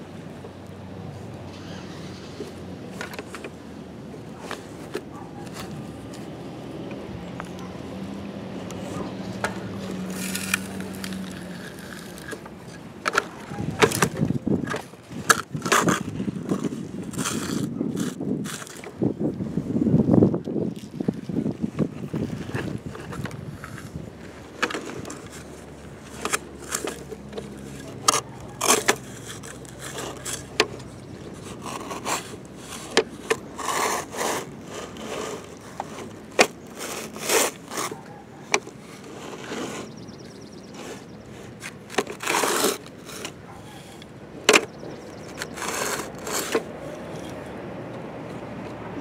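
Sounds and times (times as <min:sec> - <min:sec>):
plastic toy scraping in sand: 0:08.8 - 0:19.1, 0:21.8 - 0:47.5.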